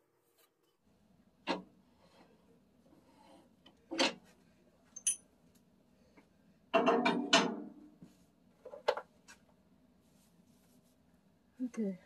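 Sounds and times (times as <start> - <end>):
metal tools clattering: 5.0 - 5.3.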